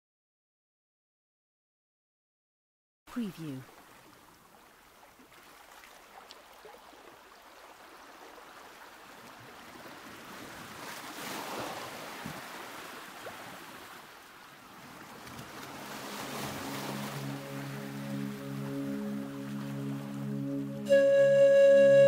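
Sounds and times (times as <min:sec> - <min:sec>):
ocean waves washing in surf: 0:05.6 - 0:20.9.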